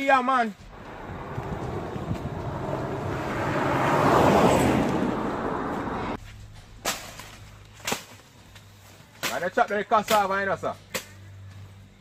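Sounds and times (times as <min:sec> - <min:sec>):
vehicle passing on road: 0:00.6 - 0:06.2.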